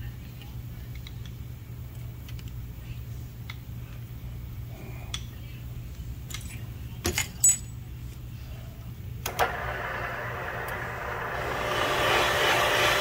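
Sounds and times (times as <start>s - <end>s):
metal tool clinks: 7.1s - 7.8s
machine whirring: 9.2s - 13.0s.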